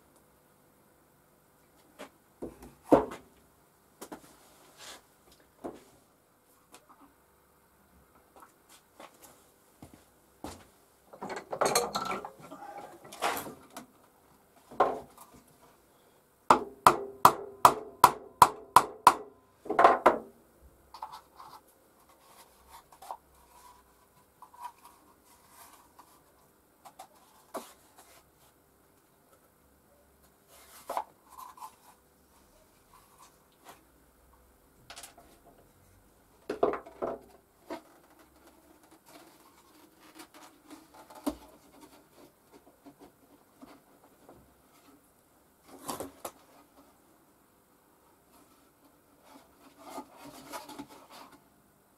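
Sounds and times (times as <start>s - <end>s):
quiet scraping and rubbing: 4.2s - 5.1s, 20.9s - 28.6s, 30.2s - 33.9s, 37.6s - 47.1s, 48.0s - 51.5s.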